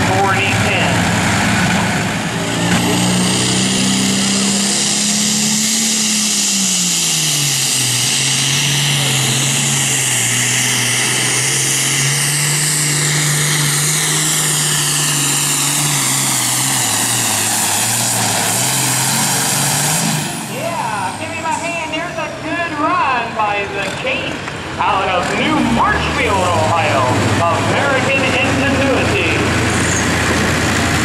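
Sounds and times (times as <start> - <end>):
diesel tractor engine under load: 0.0 - 31.0
high whine: 20.2 - 30.2.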